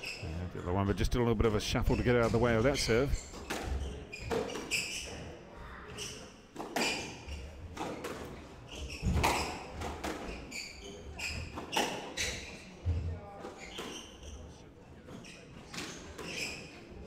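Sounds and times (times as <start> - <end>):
shoes squeaking on wooden floor: 1.9 - 17.0.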